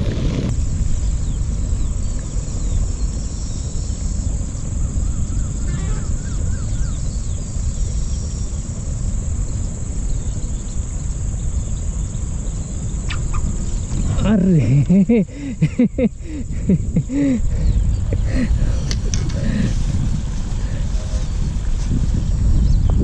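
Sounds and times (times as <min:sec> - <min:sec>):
insects droning: 0:00.0 - 0:23.0
low even rumble: 0:00.0 - 0:23.0
bird chirps: 0:00.9 - 0:19.1.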